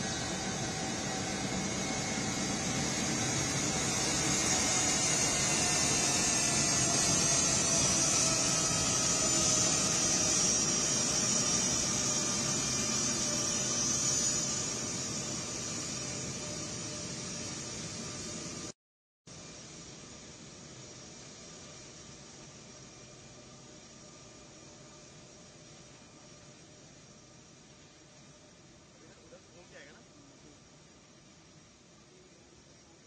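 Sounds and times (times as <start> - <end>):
jet engines whining: 0.0 - 18.7.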